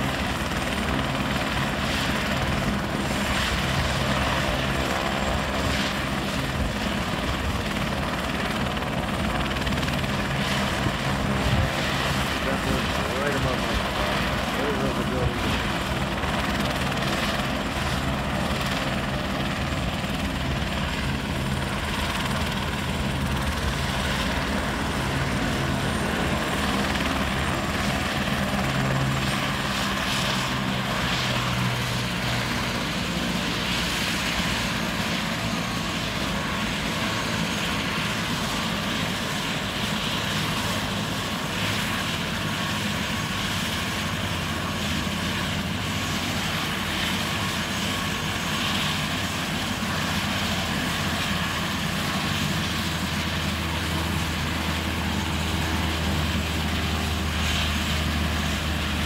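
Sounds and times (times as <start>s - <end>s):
helicopter turbine and rotor drone: 0.0s - 59.0s.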